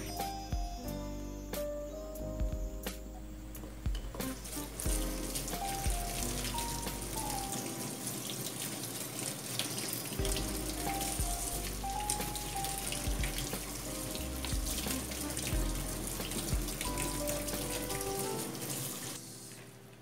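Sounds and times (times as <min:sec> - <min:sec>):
background music: 0:00.0 - 0:20.0
kitchen tap running: 0:03.9 - 0:19.7
water splashing into sink: 0:04.2 - 0:19.2.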